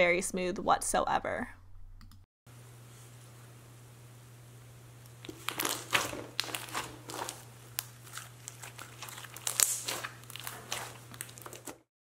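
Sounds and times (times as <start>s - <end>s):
slime squishing and crackling: 5.2s - 11.9s.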